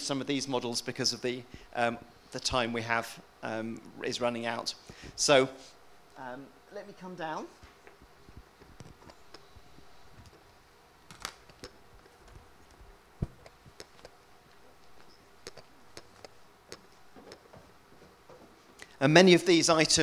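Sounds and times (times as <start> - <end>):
faint footsteps: 7.5 - 10.6, 11.2 - 19.0
microphone handling clicks and knocks: 7.6 - 10.4, 11.1 - 14.2.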